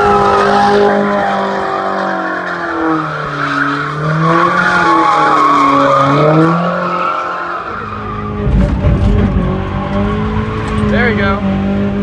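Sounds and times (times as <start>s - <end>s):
car engine revving: 0.0s - 12.0s
tyres squealing: 1.0s - 11.0s
heavy low rumbling: 8.2s - 11.5s.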